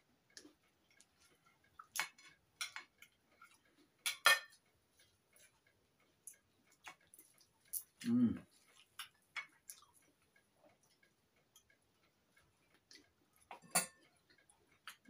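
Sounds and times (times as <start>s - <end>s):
cutlery scraping china plates: 13.6s - 14.0s.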